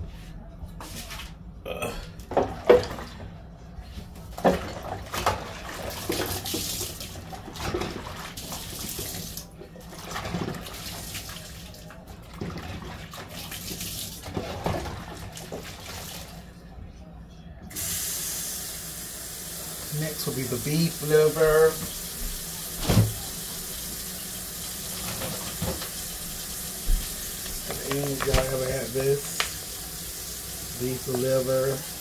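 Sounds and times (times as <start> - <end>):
water splashing in a metal sink: 4.3 - 16.4, 19.9 - 32.0.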